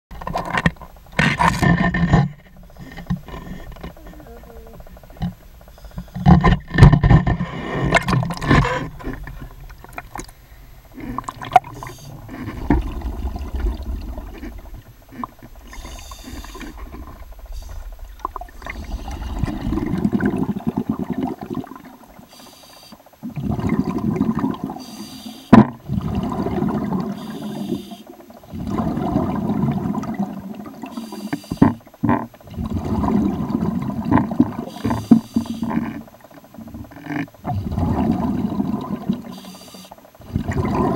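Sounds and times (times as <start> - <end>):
muffled underwater sloshing: 0.1 - 40.9
water splashing: 0.2 - 22.3.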